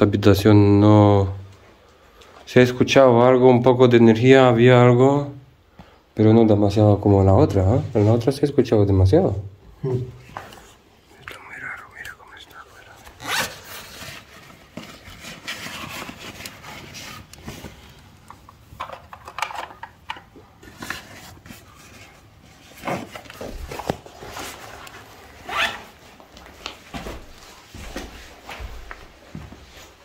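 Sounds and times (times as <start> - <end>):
clothing and gear rustling: 13.0 - 19.8, 20.4 - 30.0.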